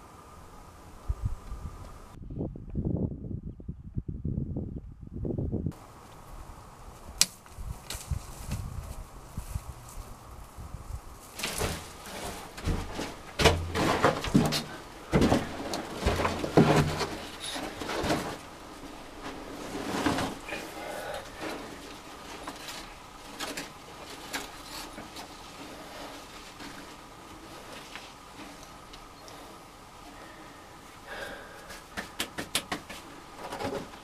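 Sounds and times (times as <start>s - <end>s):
stones scraped and knocked by hand: 11.2s - 27.0s, 31.7s - 34.0s.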